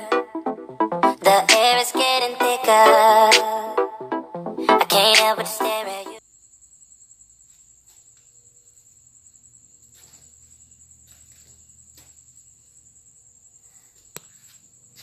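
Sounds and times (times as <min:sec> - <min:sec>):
cricket chirping: 0:06.2 - 0:15.0.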